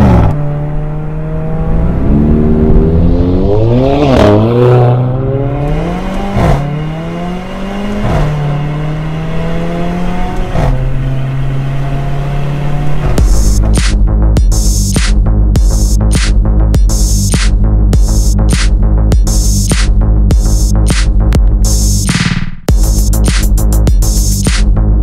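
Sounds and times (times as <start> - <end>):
car engine revving through gears: 0.0 - 14.0.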